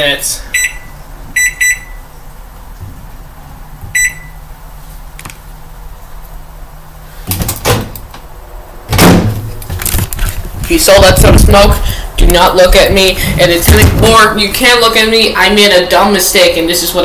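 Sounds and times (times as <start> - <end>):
low steady hum: 0.0 - 17.0
microwave keypad beep: 0.6 - 2.1, 3.9 - 4.4
bumping and rustling: 8.9 - 14.4.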